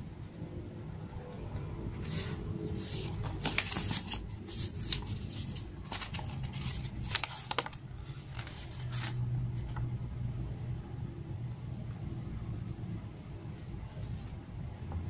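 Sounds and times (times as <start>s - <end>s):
paper crackling and rustling: 1.4s - 9.9s.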